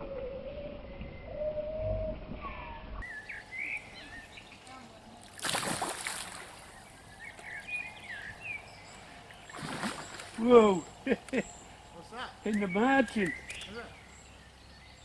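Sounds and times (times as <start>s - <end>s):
small birds chirping: 2.6s - 15.0s
loud splash in water: 5.3s - 6.6s, 9.6s - 10.4s.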